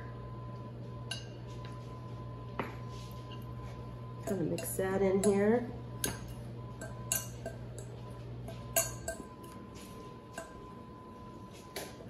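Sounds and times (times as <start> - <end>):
fork clinking against glass: 6.0 - 9.6.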